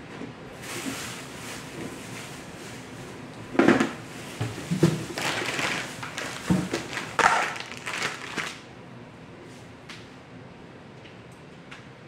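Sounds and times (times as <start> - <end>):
plastic bag rustling: 3.8 - 8.7.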